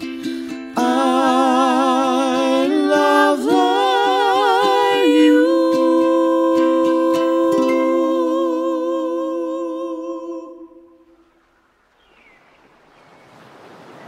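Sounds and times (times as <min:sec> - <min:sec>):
voice humming with vibrato: 0:00.0 - 0:11.2.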